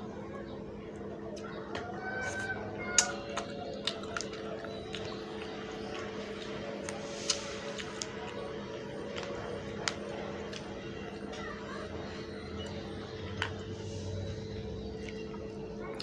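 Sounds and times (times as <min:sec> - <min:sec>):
wet chewing and mouth smacks: 0:01.4 - 0:11.4, 0:12.6 - 0:13.8, 0:14.9 - 0:16.0
low hum: 0:02.5 - 0:16.0.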